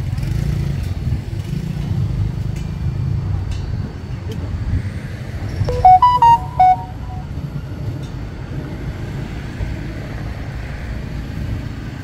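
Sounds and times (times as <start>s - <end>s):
short pitched beep: 5.7s - 7.3s.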